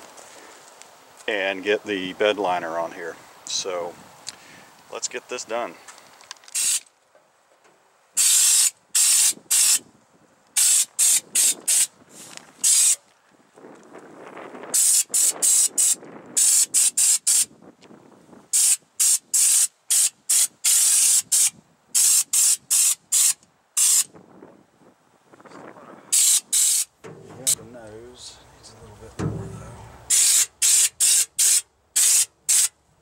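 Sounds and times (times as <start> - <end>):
spray gun hissing bursts: 6.6 - 6.8, 8.2 - 9.8, 10.6 - 11.9, 12.6 - 13.0, 18.5 - 24.1, 26.1 - 26.9, 30.1 - 32.7.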